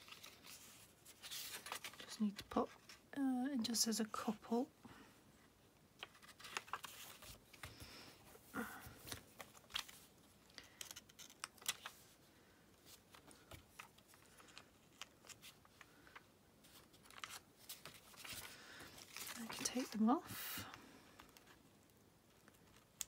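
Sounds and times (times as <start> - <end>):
paper rustling: 0.0 - 3.0, 6.0 - 8.0, 8.8 - 12.2, 12.8 - 20.5.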